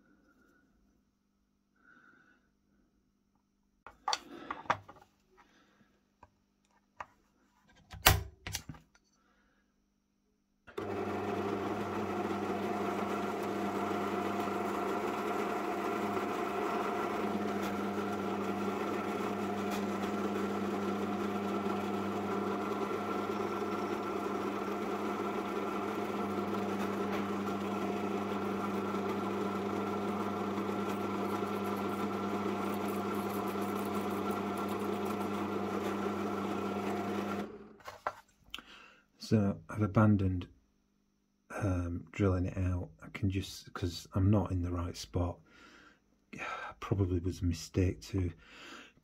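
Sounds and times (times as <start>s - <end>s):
drill press motor humming: 10.7s - 37.9s.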